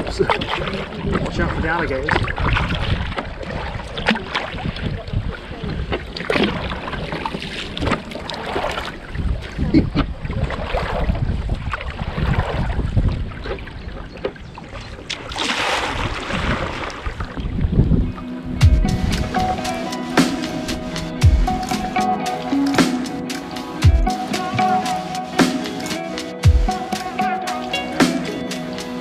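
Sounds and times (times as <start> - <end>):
wind rumbling on microphone: 0.0 - 19.6
paddle splashing in water: 0.0 - 29.0.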